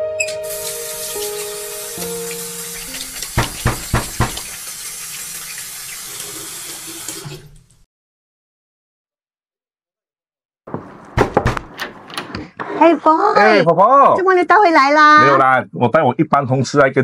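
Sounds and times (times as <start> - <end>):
water running: 0.3 - 7.8
sharp knocks: 3.2 - 4.6, 10.7 - 12.0.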